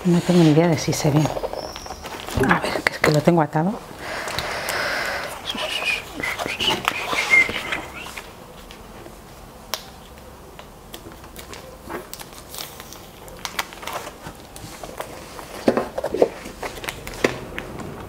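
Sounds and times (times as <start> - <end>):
stiff paper sheets rustling: 11.0 - 17.7.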